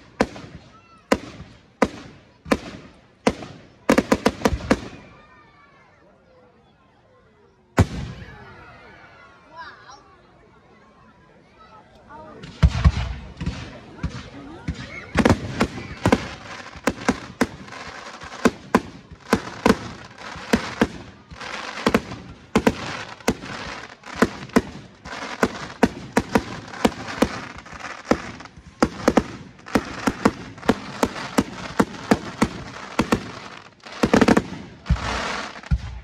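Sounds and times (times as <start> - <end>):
firework shells bursting: 15.2 - 36.0.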